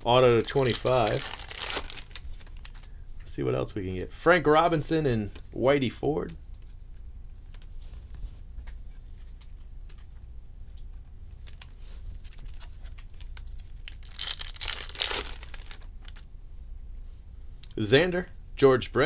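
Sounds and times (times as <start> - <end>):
plastic wrapper crinkling: 0.0 - 2.9, 11.4 - 16.3.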